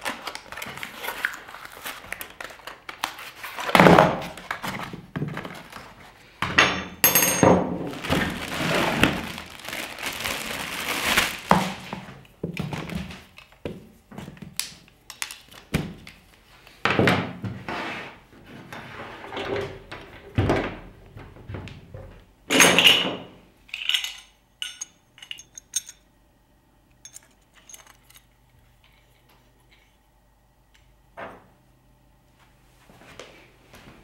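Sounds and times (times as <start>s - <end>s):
cables and hoses rustling: 7.8s - 14.5s
small metal pieces clinking: 23.7s - 26.0s.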